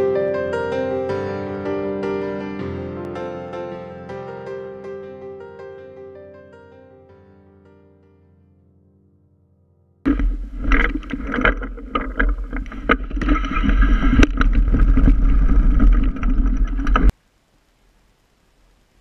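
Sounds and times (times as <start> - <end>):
clicks and knocks: 10.1 - 17.1
rippling creek: 10.1 - 17.2.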